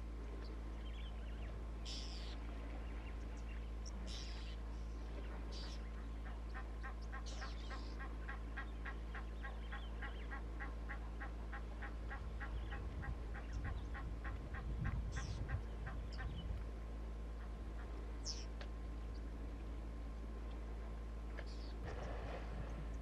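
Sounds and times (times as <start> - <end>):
elephant wading through water: 21.8 - 23.0.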